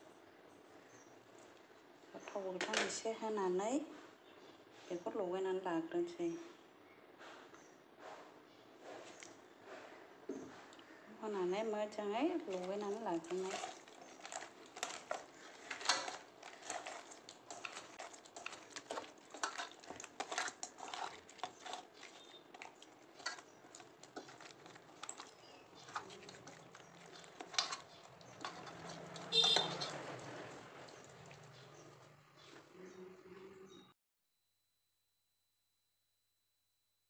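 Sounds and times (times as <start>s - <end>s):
hand squelching fish in paste: 12.4s - 32.7s.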